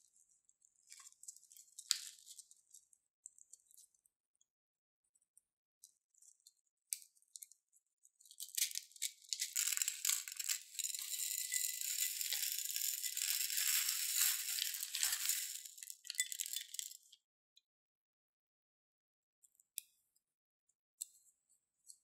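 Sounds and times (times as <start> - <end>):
beads pouring into a bowl: 8.4 - 17.0.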